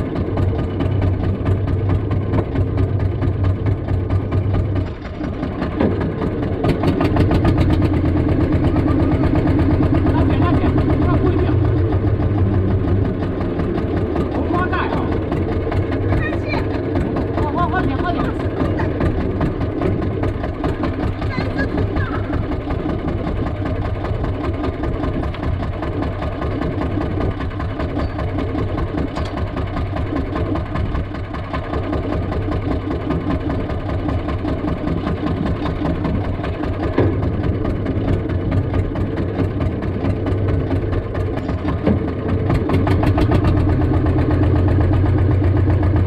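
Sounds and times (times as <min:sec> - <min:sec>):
boat engine idling: 0:00.0 - 0:46.0.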